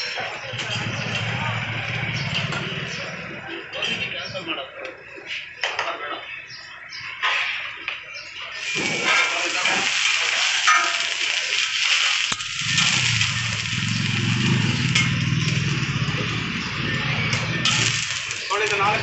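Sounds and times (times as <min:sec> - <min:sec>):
food sizzling on griddle: 0:08.5 - 0:19.0
metal spatula scraping griddle: 0:08.6 - 0:15.4, 0:17.6 - 0:19.0.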